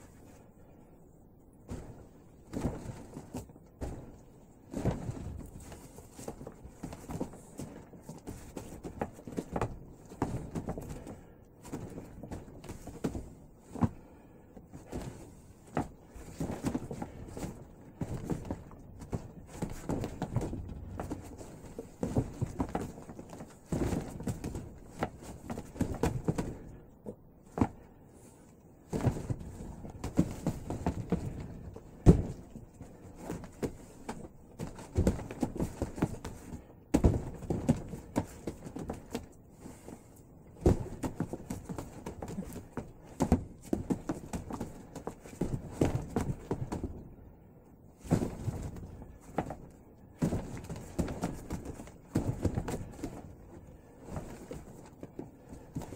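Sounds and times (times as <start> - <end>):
hands striking wooden dummy: 33.2 - 39.4.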